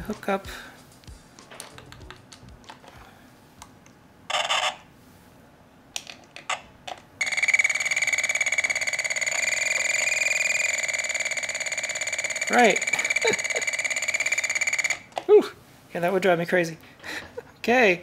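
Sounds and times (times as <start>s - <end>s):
wires clicking into terminals: 0.9s - 3.0s
high-pitched electronic buzz: 7.2s - 15.1s.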